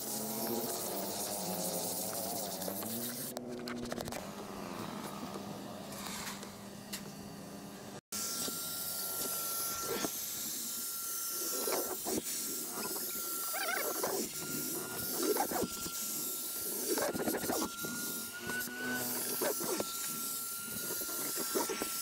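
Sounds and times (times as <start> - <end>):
thin high whine: 0.0 - 22.0
machine hiss: 8.2 - 22.0.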